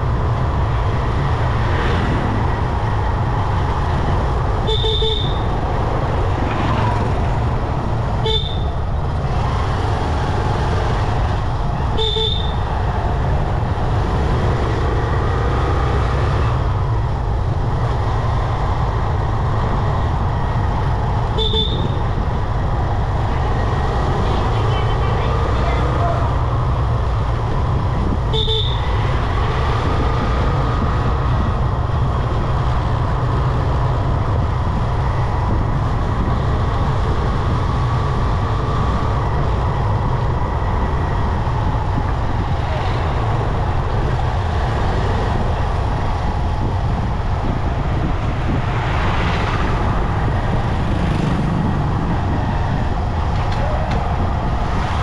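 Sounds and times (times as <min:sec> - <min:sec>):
wind noise: 0:00.0 - 0:55.0
vehicle horn toot: 0:04.6 - 0:05.4, 0:08.2 - 0:08.7, 0:11.9 - 0:12.6, 0:21.4 - 0:22.0, 0:28.3 - 0:28.9
motorbike engine rumble: 0:16.4 - 0:55.0.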